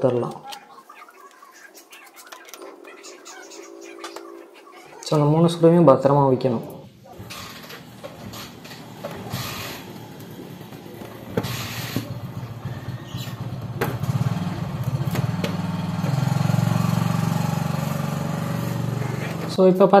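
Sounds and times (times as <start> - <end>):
small engine humming: 7.1 - 19.6.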